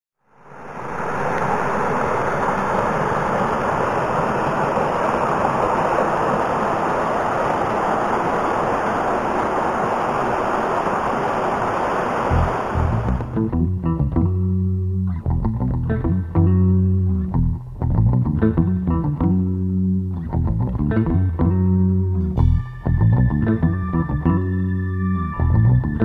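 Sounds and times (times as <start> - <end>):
creek water flowing over rocks: 0.4 - 13.4.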